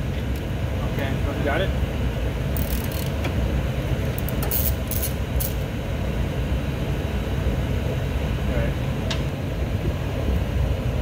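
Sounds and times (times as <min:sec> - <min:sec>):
low machinery rumble: 0:00.0 - 0:11.0
ratchet wrench clicking: 0:02.6 - 0:03.2, 0:04.2 - 0:05.6.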